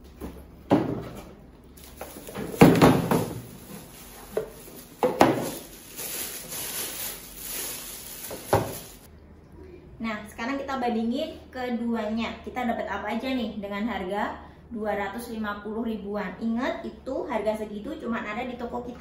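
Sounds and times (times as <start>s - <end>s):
plastic wrapping crinkling: 1.7s - 9.1s
parts knocking on table: 2.4s - 3.5s, 4.4s - 5.6s, 8.4s - 8.8s.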